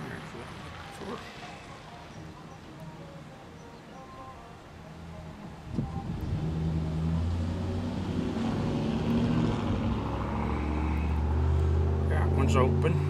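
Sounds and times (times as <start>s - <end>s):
motor vehicle engine running: 4.9s - 13.0s.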